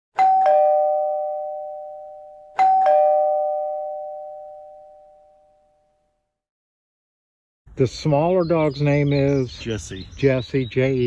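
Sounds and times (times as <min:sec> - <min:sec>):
two-tone doorbell chime: 0:00.2 - 0:06.2.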